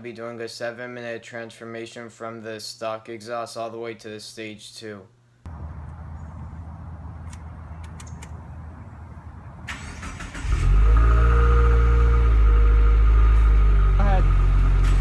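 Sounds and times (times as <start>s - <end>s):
car engine idling: 5.5s - 15.0s
ignition hum and clicks: 7.2s - 8.5s
engine cranking: 9.7s - 11.6s.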